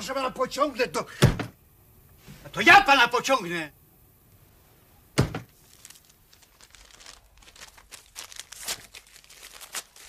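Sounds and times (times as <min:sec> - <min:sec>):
paper tearing and crumpling: 0:05.6 - 0:10.0.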